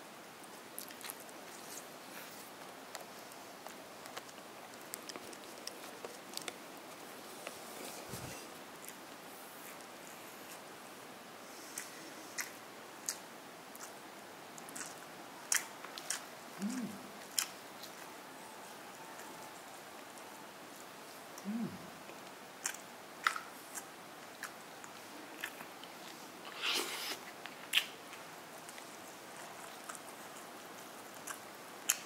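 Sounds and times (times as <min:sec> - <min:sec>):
crispy chicken crackling and crunching: 0:00.8 - 0:07.5.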